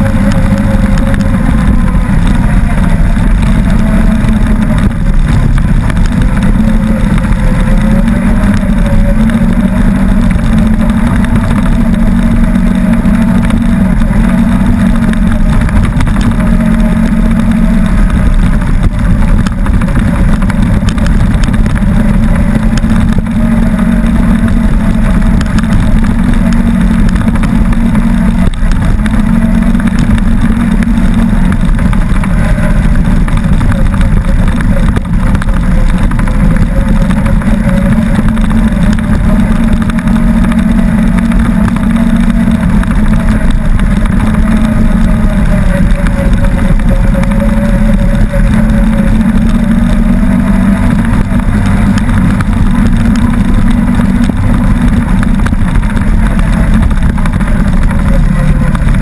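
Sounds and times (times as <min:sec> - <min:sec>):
rumbling road noise: 0:00.0 - 0:59.0
utility vehicle engine running: 0:00.0 - 0:59.0.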